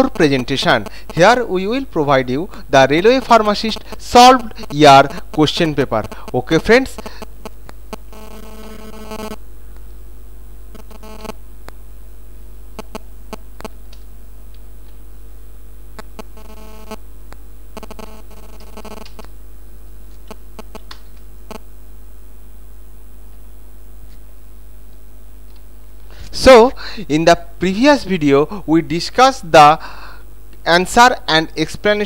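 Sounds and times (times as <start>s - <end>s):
low electrical hum: 0.0s - 32.0s
faint clicks: 18.6s - 19.3s.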